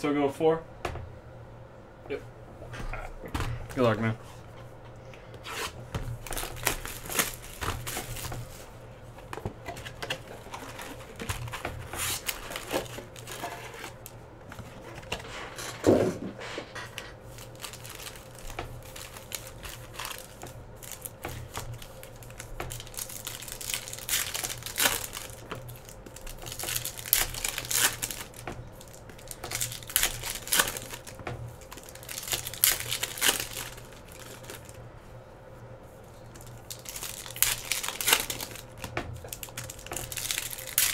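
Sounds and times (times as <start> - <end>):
wrappers tearing and crinkling: 5.5 - 8.7, 9.6 - 15.3, 16.9 - 34.8, 36.3 - 40.9.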